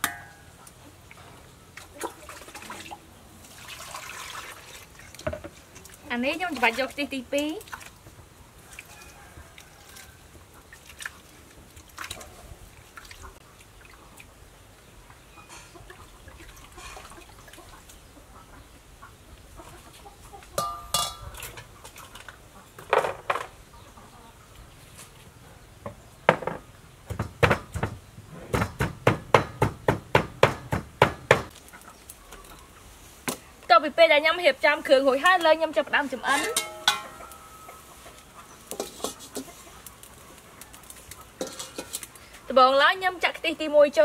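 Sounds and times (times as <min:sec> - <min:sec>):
bowls clinking: 0:20.6 - 0:21.6, 0:36.3 - 0:37.8, 0:41.4 - 0:42.1.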